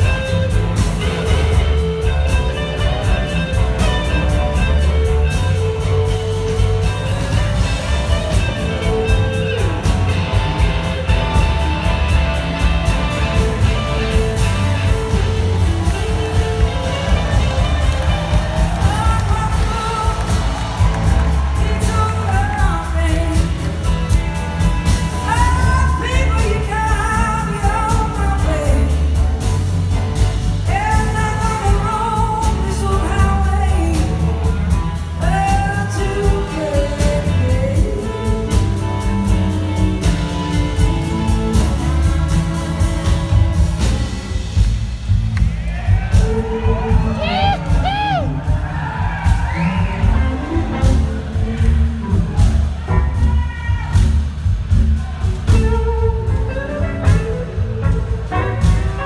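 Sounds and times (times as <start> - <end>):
electric guitars: 0.0 - 53.9, 55.0 - 59.0
bass guitar: 0.0 - 59.0
drums: 0.0 - 59.0
person singing: 25.2 - 29.4, 30.7 - 39.8.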